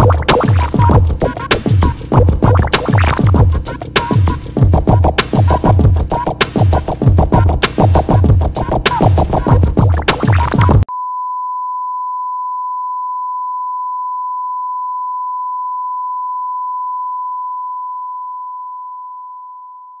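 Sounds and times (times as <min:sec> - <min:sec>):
music with a beat: 0:00.0 - 0:10.9.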